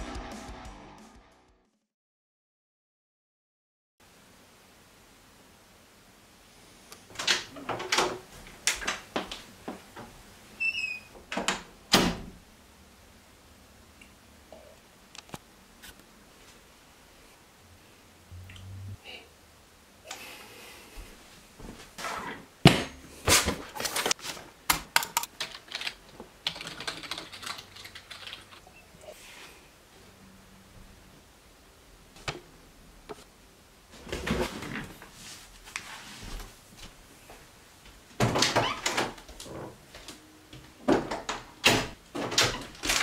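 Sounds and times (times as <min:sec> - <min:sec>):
door squeak: 0:10.6 - 0:11.2, 0:38.4 - 0:39.2
keyboard typing: 0:25.0 - 0:28.6.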